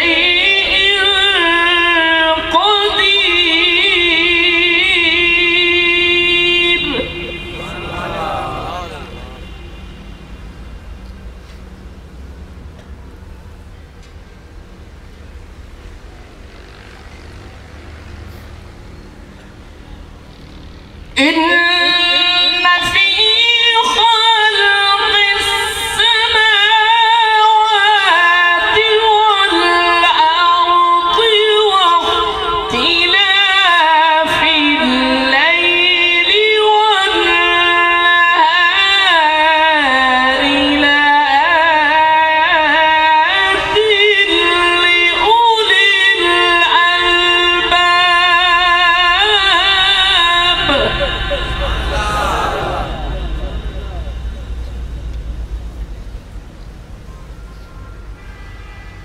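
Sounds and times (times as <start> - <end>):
man chanting melodically: 0.0 - 10.0, 50.1 - 54.8.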